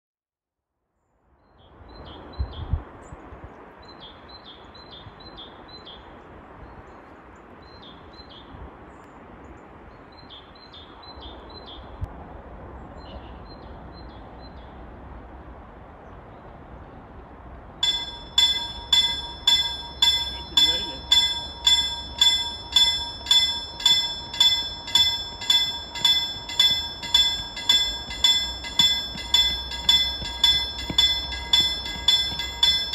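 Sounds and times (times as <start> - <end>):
steady background noise: 17.4 - 32.9
level crossing warning bell: 17.8 - 32.9.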